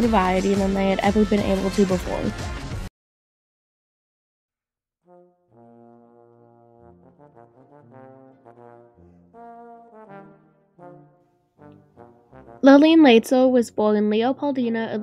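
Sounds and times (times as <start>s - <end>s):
instrumental background music: 0.0s - 2.9s, 6.8s - 15.0s.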